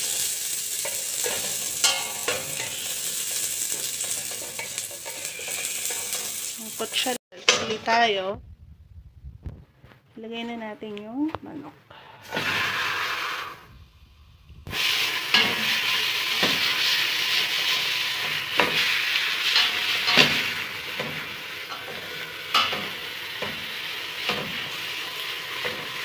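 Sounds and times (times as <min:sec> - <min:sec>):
chicken sizzling in hot oil: 0:00.0 - 0:07.2, 0:12.3 - 0:13.6, 0:14.6 - 0:26.0
wooden spoon scraping a pot: 0:00.9 - 0:07.1.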